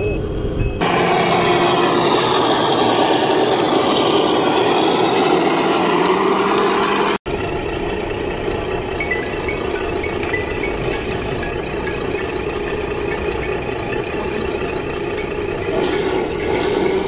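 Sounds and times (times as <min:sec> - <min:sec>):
toy truck diesel engine sound: 0:00.8 - 0:17.0.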